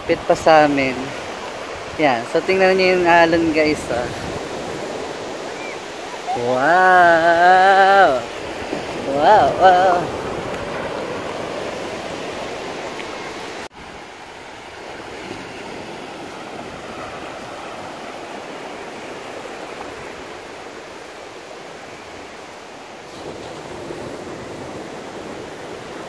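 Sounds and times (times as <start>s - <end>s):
ocean surf breaking on beach: 0.0s - 26.0s.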